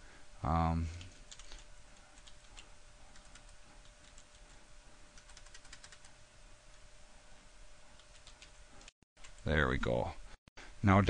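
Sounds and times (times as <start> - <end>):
faint steady hum: 0.0 - 11.0
computer keyboard typing: 0.9 - 4.6, 5.2 - 6.2, 8.0 - 9.6.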